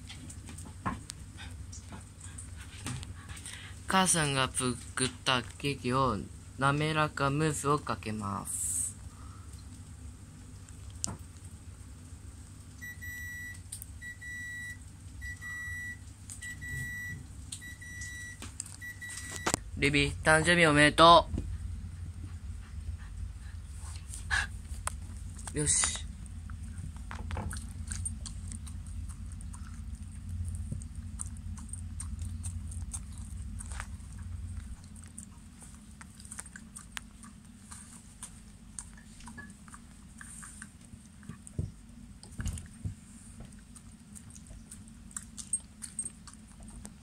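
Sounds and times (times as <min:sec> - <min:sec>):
steady low hum: 0:00.0 - 0:47.0
dog licking and chewing: 0:16.3 - 0:20.6, 0:22.1 - 0:47.0.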